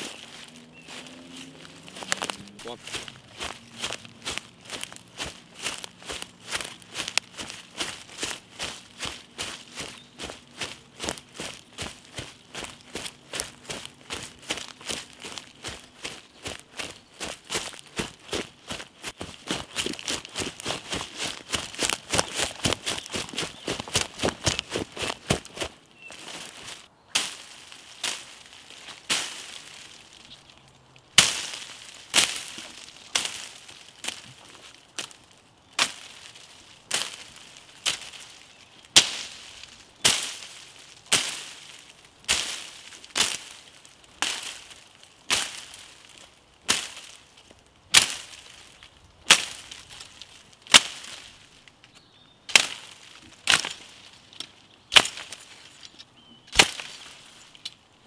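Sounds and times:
dry twigs snapping: 0.0s - 57.8s.

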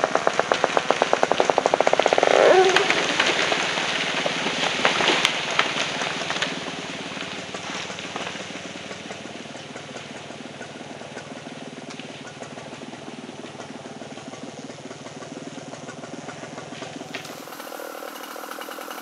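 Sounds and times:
tree trunk hitting ground: 0.0s - 8.6s
branches crashing: 0.0s - 9.5s, 16.6s - 19.0s
wood cracking: 0.0s - 10.4s, 16.3s - 19.0s
chainsaw idling: 0.0s - 19.0s.

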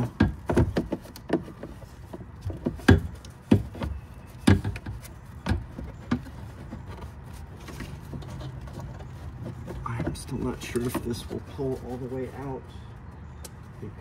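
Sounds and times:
plastic housing knocking on metal: 0.0s - 1.8s
handling and rustling: 0.0s - 14.0s.

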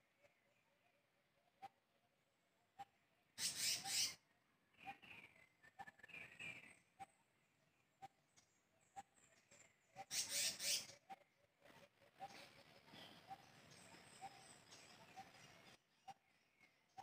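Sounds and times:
bird chirps: 2.8s - 4.2s, 7.9s - 11.4s, 12.2s - 17.0s.

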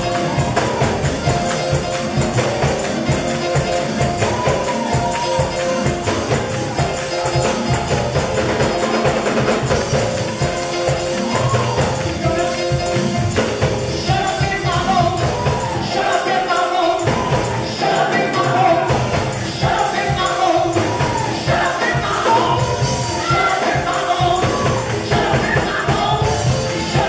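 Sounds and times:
tambourine shaking: 0.0s - 27.0s
voices singing gospel: 0.0s - 27.0s.

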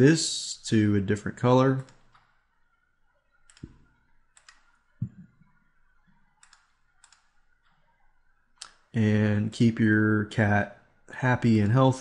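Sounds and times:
computer mouse clicking: 1.8s - 2.5s, 3.2s - 8.0s, 8.6s - 8.9s
soft low thumps: 5.0s - 5.4s.

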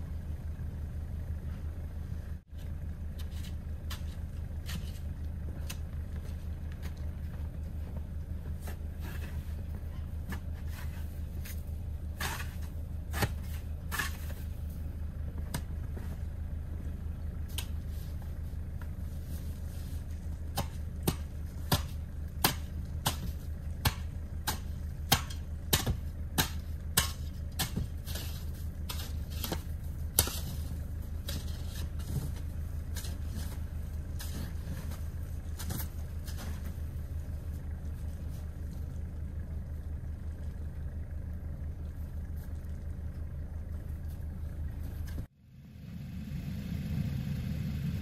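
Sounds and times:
steady low hum: 0.0s - 48.0s
shovel striking packed snow: 10.3s - 14.6s, 19.2s - 36.8s.

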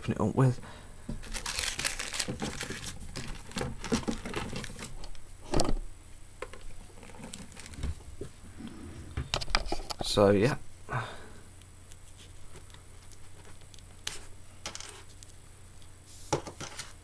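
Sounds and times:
rustling of small objects: 1.2s - 5.2s, 6.5s - 8.3s.

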